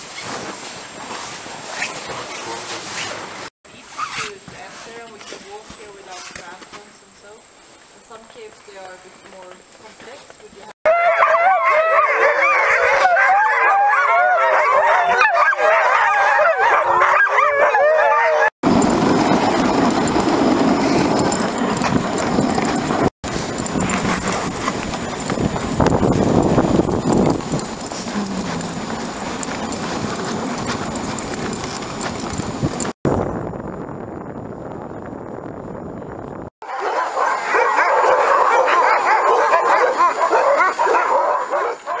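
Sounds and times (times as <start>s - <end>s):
sled runners and paws crunching snow: 0.0s - 33.0s, 36.6s - 42.0s
dogs yelping and howling: 10.8s - 18.9s, 26.9s - 32.2s, 36.6s - 42.0s.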